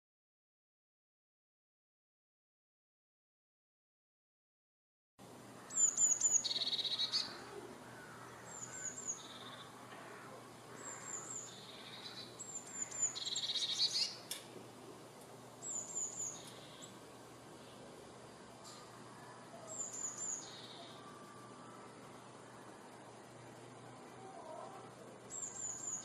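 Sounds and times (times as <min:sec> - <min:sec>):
blue tit singing: 0:05.6 - 0:14.3, 0:15.6 - 0:17.0, 0:19.6 - 0:21.2, 0:25.3 - 0:26.0.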